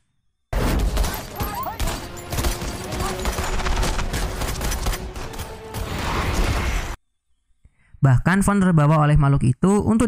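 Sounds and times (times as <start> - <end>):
action film music: 0.5 - 7.0.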